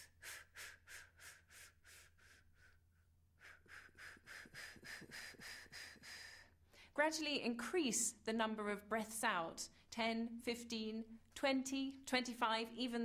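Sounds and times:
woman breathing in and out: 0:00.0 - 0:07.0.

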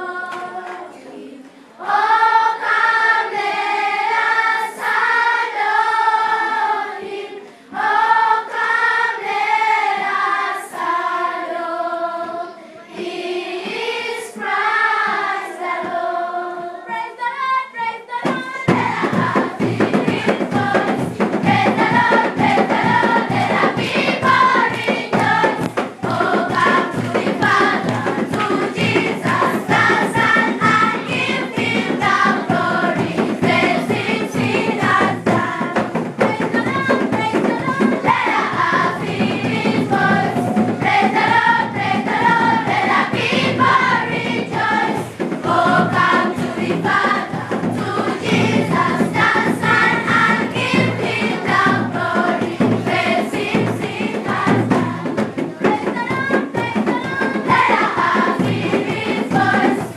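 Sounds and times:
children's choir singing: 0:00.0 - 0:59.9
steady rhythmic beat: 0:18.3 - 0:59.9.

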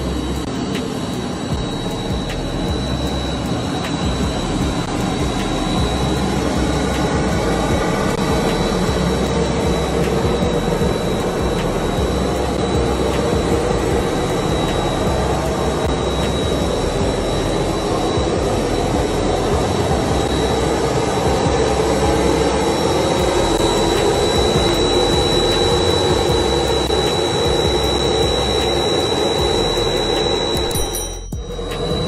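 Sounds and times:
high-pitched engine whine: 0:00.0 - 0:32.0
jet engines roaring: 0:00.0 - 0:32.0.

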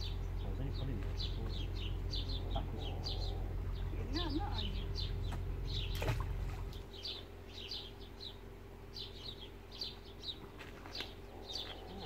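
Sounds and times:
low rumble: 0:00.0 - 0:12.0
small songbirds chirping: 0:00.0 - 0:12.0.

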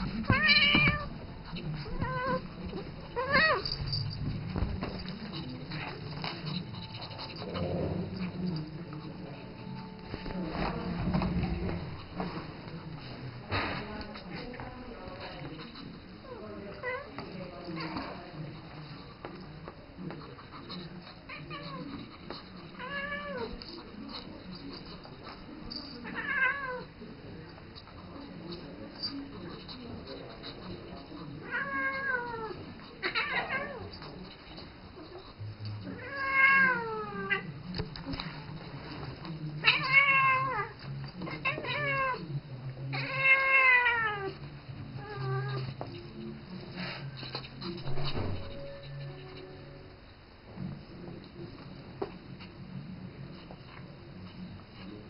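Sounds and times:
faint scuffling and clicks: 0:00.0 - 0:26.6, 0:27.4 - 0:42.2
cat meowing: 0:00.2 - 0:01.1.

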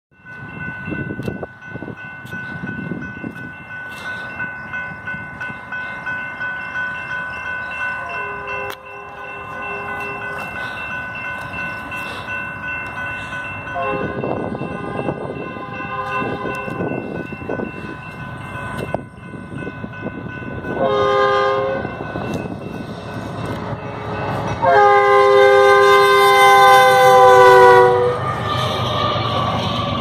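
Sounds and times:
railroad crossing bell ringing: 0:00.1 - 0:30.0
train horn: 0:08.0 - 0:10.5, 0:13.7 - 0:16.8, 0:20.7 - 0:22.0, 0:23.8 - 0:29.1.

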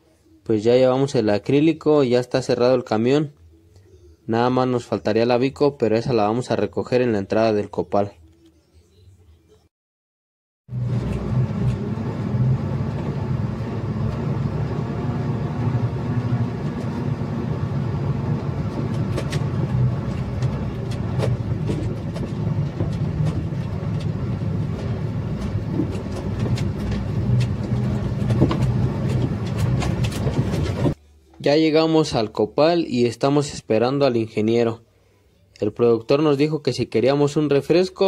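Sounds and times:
truck engine running: 0:10.7 - 0:31.0
clicks and knocks in cab: 0:18.7 - 0:31.0.

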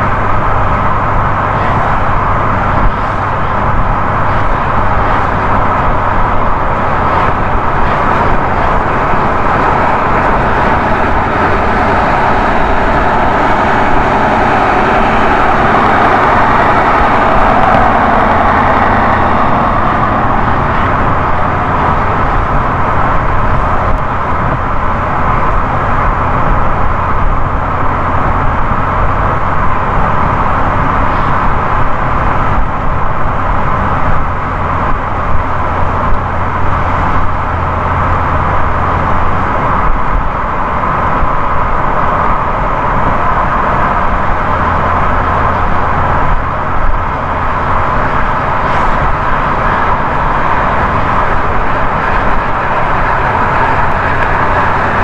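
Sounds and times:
car road noise at highway speed: 0:00.0 - 0:55.0.

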